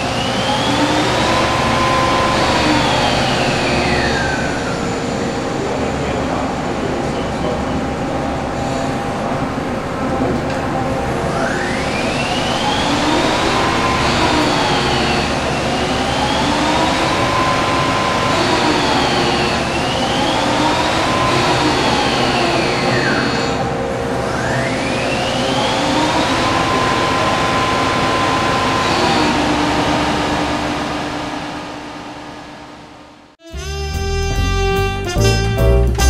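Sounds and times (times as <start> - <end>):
motor whine rising and falling: 0.0 - 6.7, 10.9 - 33.2
steady machine noise: 0.0 - 33.3.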